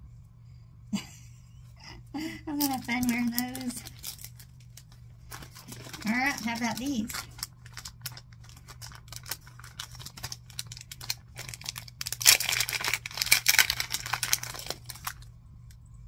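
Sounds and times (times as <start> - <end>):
plastic packaging crinkling: 2.5 - 15.3.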